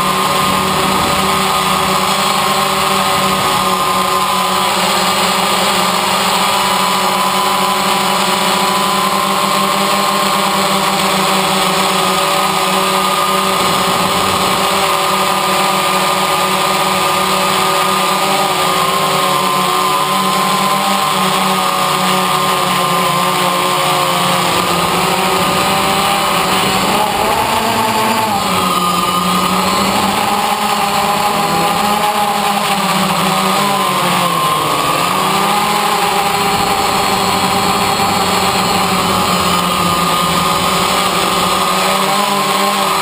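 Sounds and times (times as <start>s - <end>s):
drone propellers buzzing: 0.0s - 43.0s.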